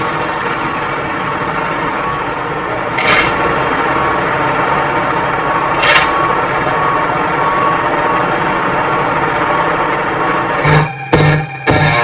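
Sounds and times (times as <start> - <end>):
truck engine rumble: 0.0 - 12.0
shovel scraping wet road: 3.0 - 3.5, 5.7 - 6.2.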